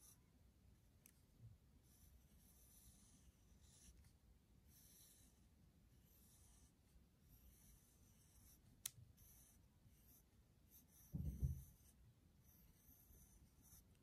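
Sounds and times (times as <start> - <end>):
pencil scratching on paper: 1.8 - 14.0
dull thump: 11.1 - 11.7.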